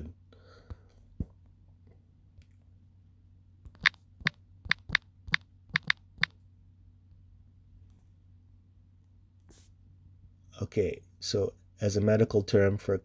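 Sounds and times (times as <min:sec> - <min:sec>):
faint low hum: 0:00.0 - 0:13.0
phone keyboard key clicks: 0:03.7 - 0:06.3.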